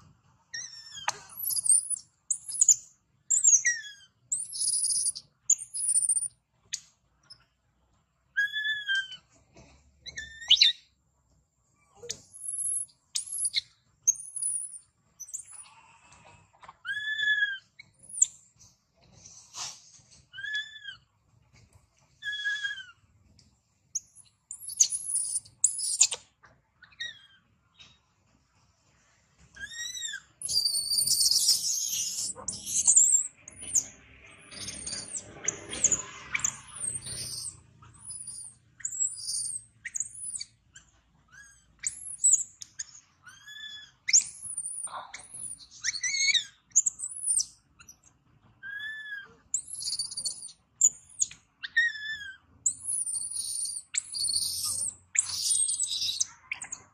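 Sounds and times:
infant monkeys squealing: 0.5s - 6.3s, 8.4s - 9.4s, 10.0s - 10.9s, 11.9s - 18.3s, 19.5s - 21.1s, 22.2s - 23.0s, 24.2s - 27.5s, 29.5s - 56.9s.

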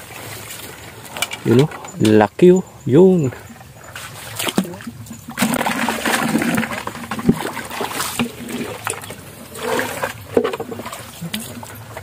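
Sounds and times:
shallow water splashing: 3.1s - 12.0s.

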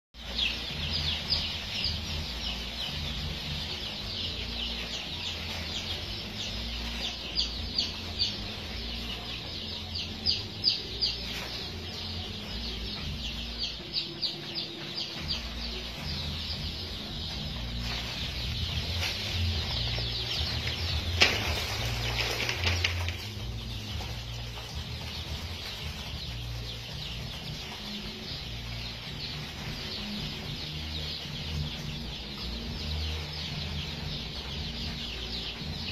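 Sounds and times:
baby chicks peeping: 0.2s - 35.9s.

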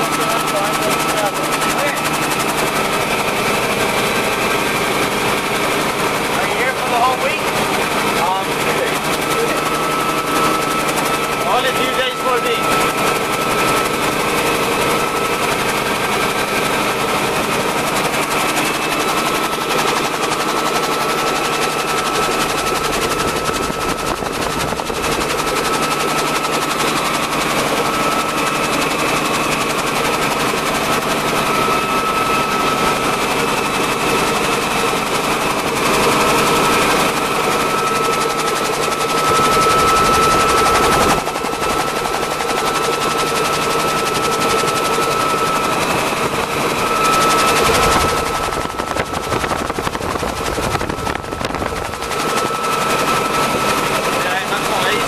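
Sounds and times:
helicopter engine and rotor: 0.0s - 55.0s.

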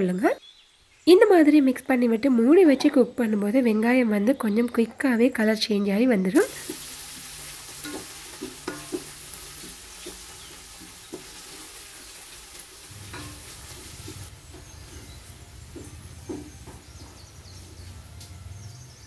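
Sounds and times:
onions sizzling in oil: 6.4s - 17.0s
wooden spatula knocking: 7.8s - 11.6s, 13.0s - 17.4s.

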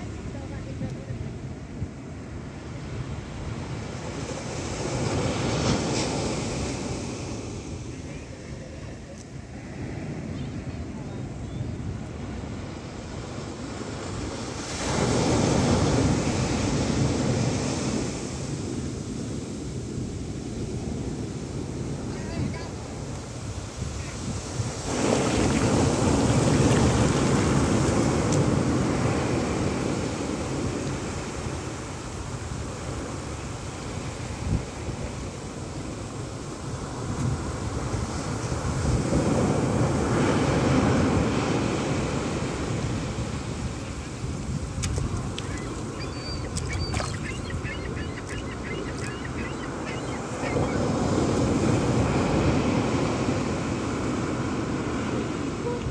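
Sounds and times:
surf washing on sand: 0.0s - 55.9s
ocean wave breaking: 20.9s - 34.4s, 36.7s - 55.9s
foam washing up sand: 24.0s - 33.2s.

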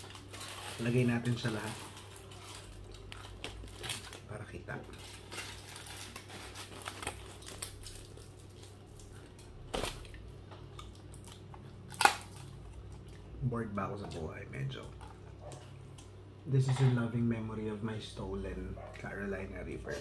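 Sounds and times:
food packaging clicks and rustles: 0.0s - 13.1s.

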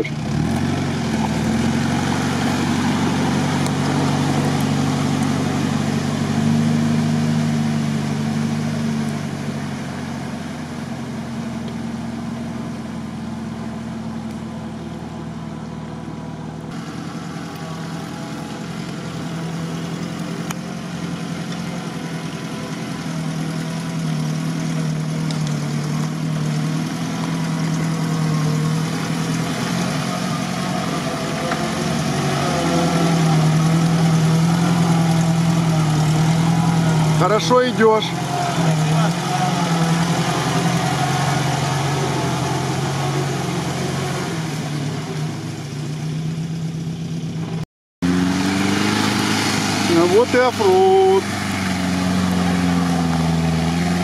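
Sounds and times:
wheels splashing through water: 0.0s - 11.9s, 16.9s - 46.3s, 48.0s - 54.0s
engine idling in water: 0.0s - 47.6s, 49.1s - 54.0s
car engine running: 0.0s - 54.0s.

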